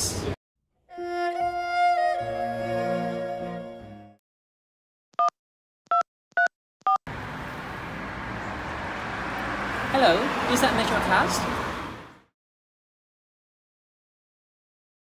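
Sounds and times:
violin music: 0.9s - 4.2s
phone keypad touch-tone beeps: 5.9s - 7.0s.

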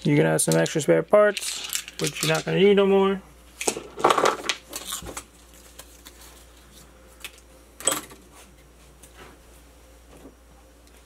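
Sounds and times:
small metal parts clinking: 1.4s - 2.5s.

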